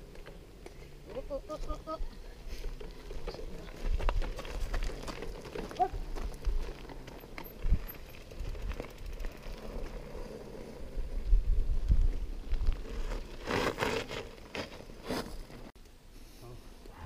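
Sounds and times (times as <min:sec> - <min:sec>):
bike tyre noise: 0:01.8 - 0:15.7
bike rattling over ground: 0:02.6 - 0:15.7
wind rumbling on microphone: 0:07.5 - 0:13.2
rushes of scraping noise: 0:12.8 - 0:15.5.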